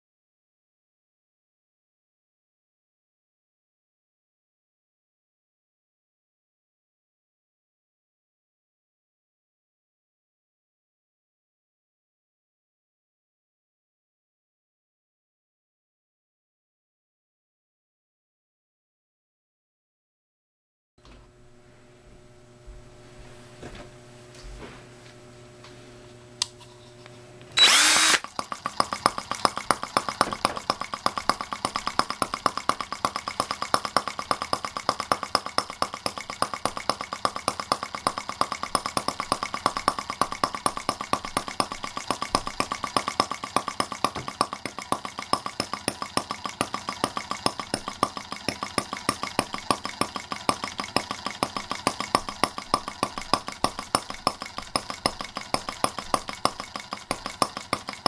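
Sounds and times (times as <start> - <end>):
small engine starting and running: 27.2 - 58.0.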